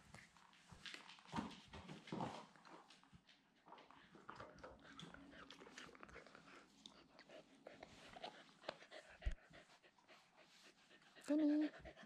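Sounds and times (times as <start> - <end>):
dog clicks and rustling: 0.0 - 3.8.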